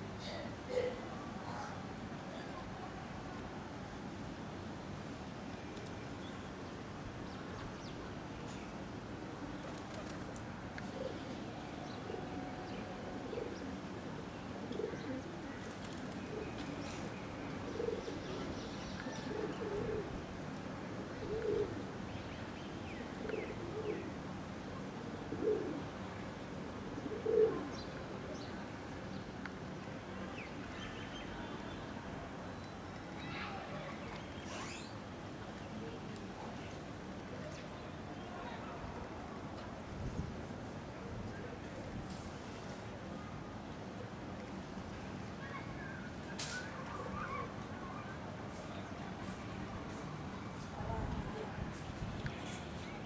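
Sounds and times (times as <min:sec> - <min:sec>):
background hiss: 0:00.0 - 0:53.0
pigeons cooing: 0:19.2 - 0:20.1, 0:21.2 - 0:21.8, 0:25.2 - 0:25.9, 0:27.1 - 0:27.7.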